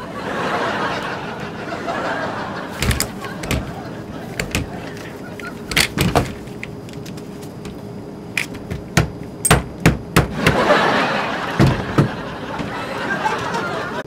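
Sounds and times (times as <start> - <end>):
steady cabin noise: 0.0 - 14.0
knocks and bangs on door: 8.7 - 10.6, 11.6 - 12.7.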